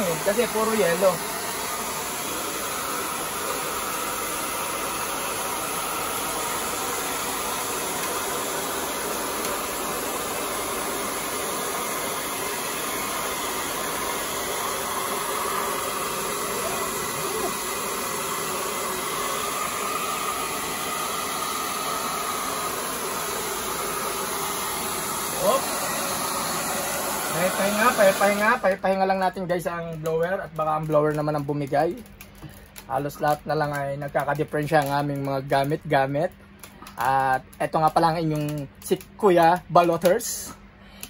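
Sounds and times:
electric blower running: 0.0 - 28.8.

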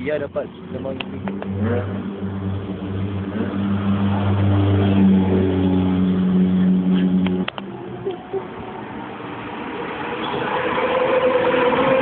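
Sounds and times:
sports car driving past: 1.2 - 8.1.

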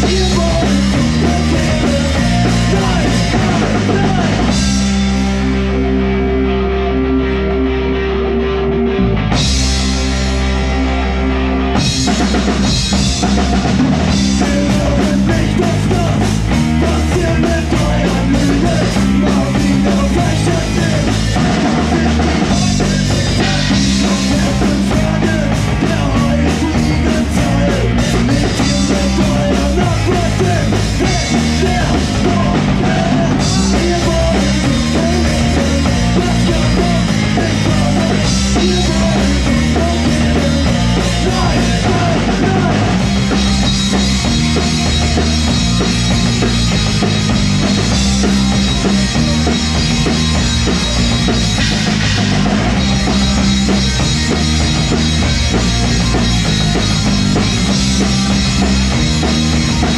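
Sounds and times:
live punk rock band: 0.0 - 59.9.

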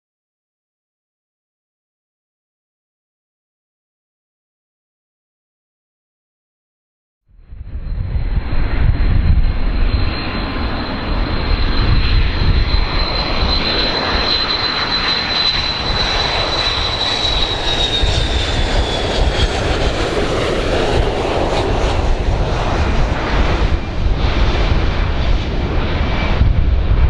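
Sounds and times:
high jet whine: 7.4 - 27.0
jet engine noise: 7.4 - 27.0.

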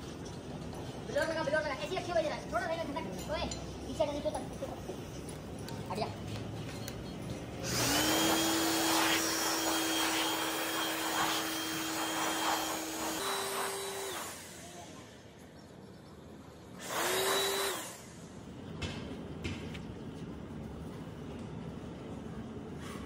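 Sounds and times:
electric power tool motor whirring: 7.6 - 14.8, 16.8 - 18.2.

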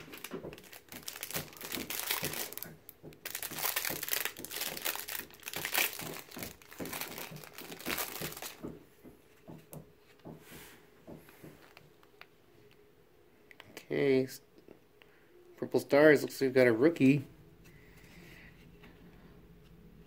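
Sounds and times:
cellophane wrapper crinkling: 0.0 - 8.7.

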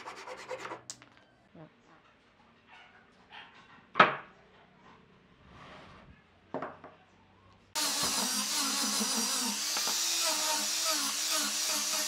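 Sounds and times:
angle grinder running: 7.8 - 12.0.

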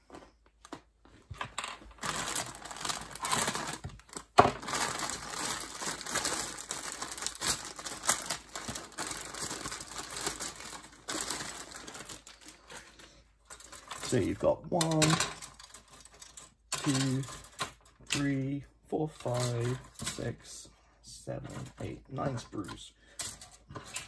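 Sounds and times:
plastic bag crinkling: 1.5 - 17.8.

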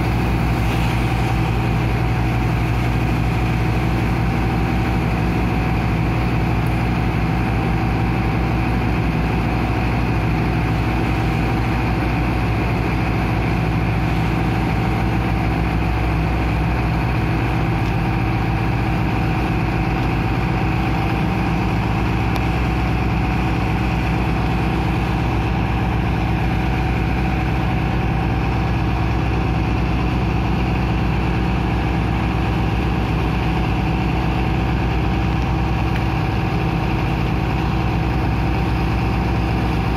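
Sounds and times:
pump engine droning: 0.0 - 39.9.

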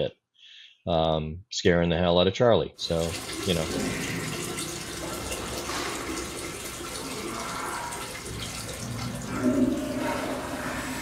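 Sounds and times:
water rushing in a storm drain: 2.8 - 11.0.

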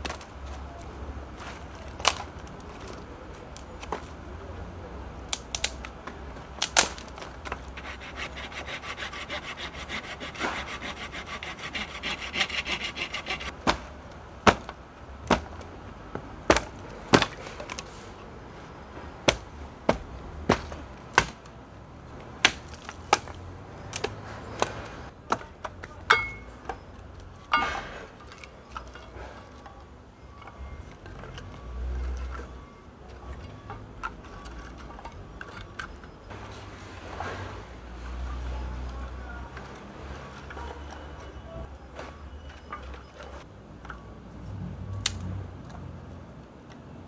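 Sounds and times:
sticks snapping underfoot: 5.3 - 6.0, 45.0 - 45.8
hand saw cutting branch: 7.7 - 13.6
sticks clattering against metal: 22.4 - 26.8, 27.5 - 29.2.

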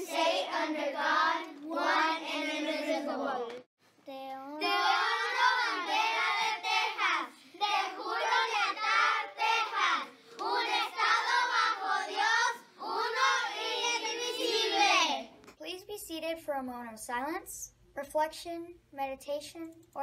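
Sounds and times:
children chanting in unison: 0.0 - 3.7, 4.6 - 15.3.

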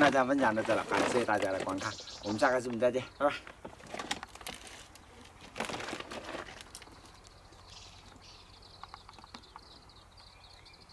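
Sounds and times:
plastic bag crinkling: 0.0 - 1.9, 3.6 - 7.2
footsteps over rock and brush: 0.0 - 7.4
faint bird chirps: 1.8 - 3.4.

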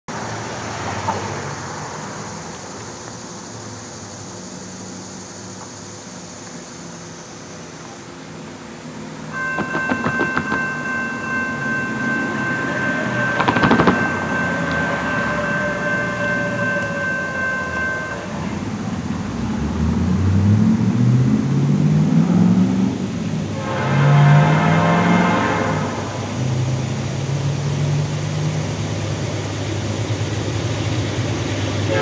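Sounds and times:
locomotive engine low drone: 0.1 - 32.0
locomotive horn chord: 9.0 - 19.2, 23.4 - 26.8, 31.8 - 32.0.

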